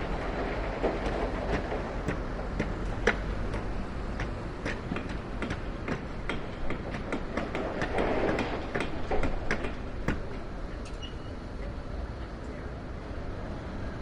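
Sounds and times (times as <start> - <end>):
sharp knocks and taps: 1.0 - 10.4.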